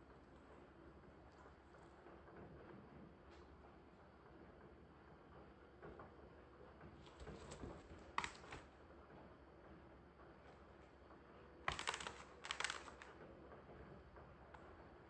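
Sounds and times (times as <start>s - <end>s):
rabbit scrabbling in hay: 7.0s - 8.7s.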